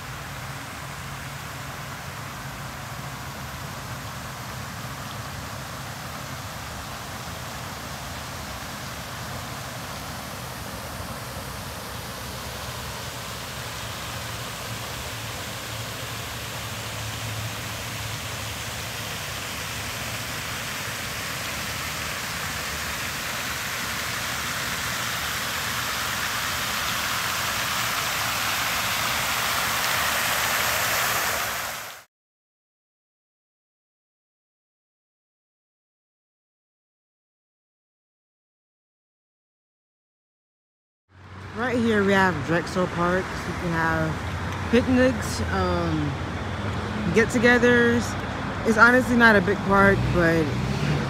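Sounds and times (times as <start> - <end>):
fountain water splashing: 0.0 - 32.1, 41.2 - 51.0.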